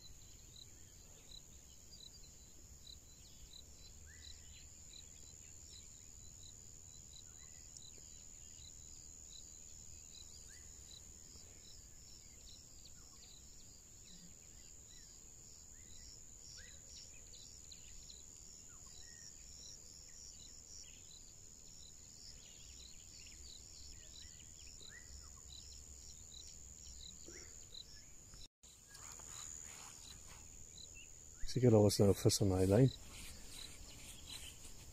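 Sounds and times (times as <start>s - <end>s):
crickets and insects chirping: 0.0s - 34.9s.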